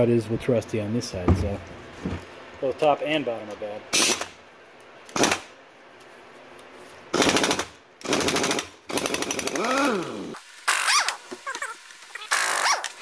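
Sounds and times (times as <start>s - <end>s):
impact wrench rattling bursts: 7.2s - 10.0s.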